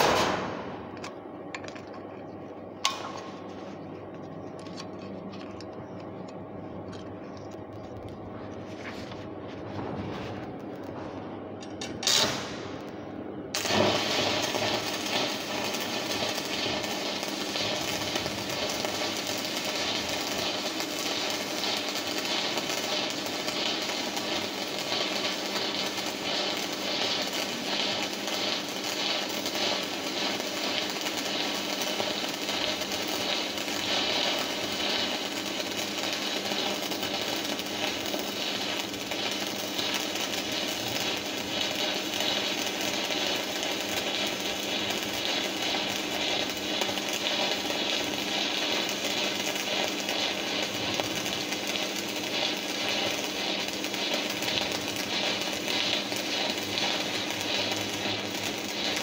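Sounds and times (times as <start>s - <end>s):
welding arc crackling and sizzling: 0.0s - 59.0s.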